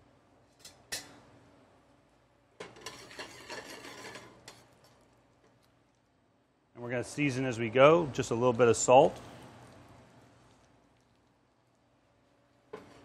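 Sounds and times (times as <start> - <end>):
spoon scraping metal pan: 2.6 - 5.0, 12.7 - 13.0.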